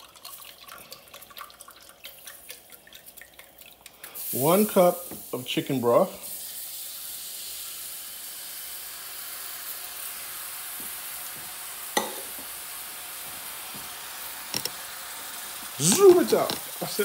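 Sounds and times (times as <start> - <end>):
broth sizzling in skillet: 3.8 - 17.0.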